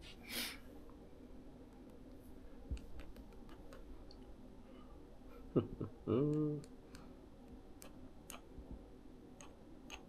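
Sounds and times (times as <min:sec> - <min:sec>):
faint clicks and ticks: 0:01.7 - 0:04.4, 0:06.2 - 0:10.0.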